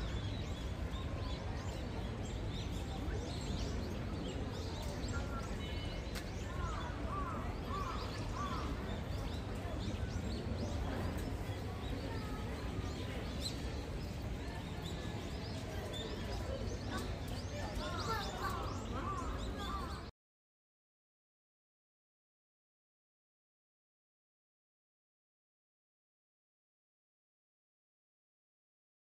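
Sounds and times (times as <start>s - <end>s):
small birds chirping: 0.0s - 20.1s.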